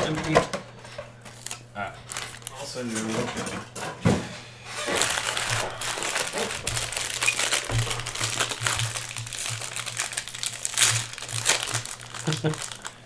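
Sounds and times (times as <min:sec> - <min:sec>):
foil wrapper crinkling: 0:01.3 - 0:03.1, 0:04.8 - 0:13.0.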